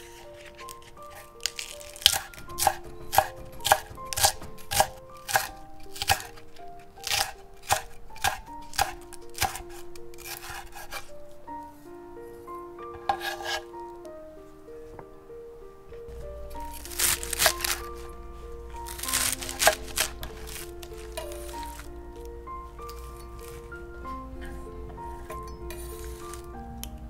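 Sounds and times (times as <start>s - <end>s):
soft background music: 0.0s - 27.0s
knife chopping on wooden board: 0.5s - 6.4s, 7.0s - 11.1s, 13.0s - 13.6s.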